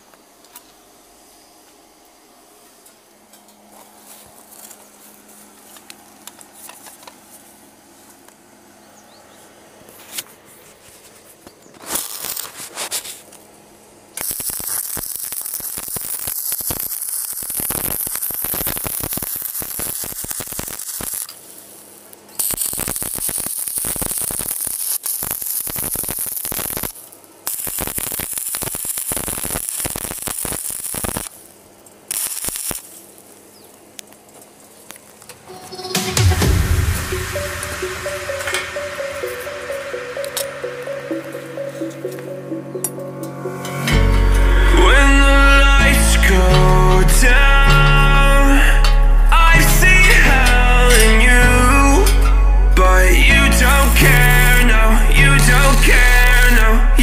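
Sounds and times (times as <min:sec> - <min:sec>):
welding arc crackling sizzle: 0:11.7 - 0:13.5, 0:14.1 - 0:42.3, 0:43.7 - 0:57.0.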